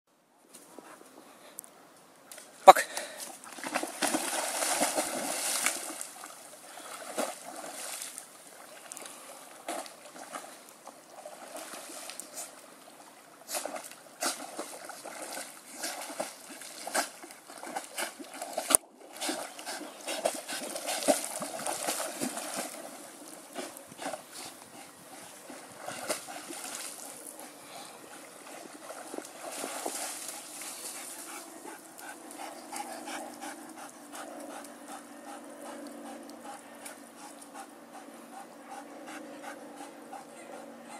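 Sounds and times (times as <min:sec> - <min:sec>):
dog splashing in water: 0:03.4 - 0:12.3, 0:13.6 - 0:24.2, 0:25.4 - 0:27.4, 0:28.4 - 0:31.9.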